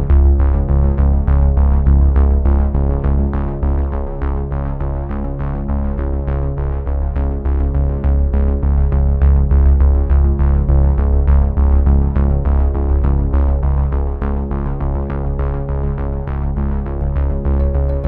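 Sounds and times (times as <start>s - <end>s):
music with heavy bass and beat: 17.4s - 18.0s.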